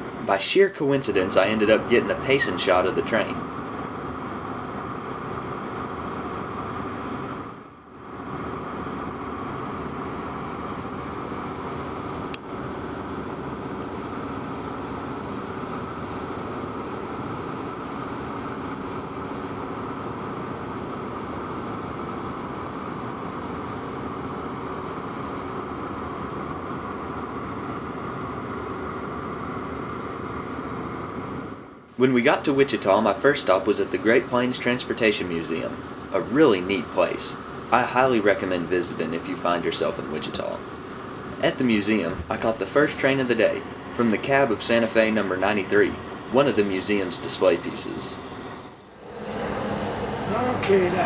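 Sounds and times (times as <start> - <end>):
car road and engine noise: 1.0 - 3.9, 39.0 - 51.0.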